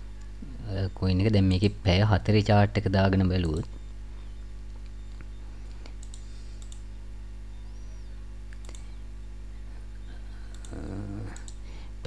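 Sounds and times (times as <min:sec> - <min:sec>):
steady low hum: 0:00.0 - 0:12.0
mouse buttons clicking: 0:04.8 - 0:06.9, 0:08.5 - 0:09.0.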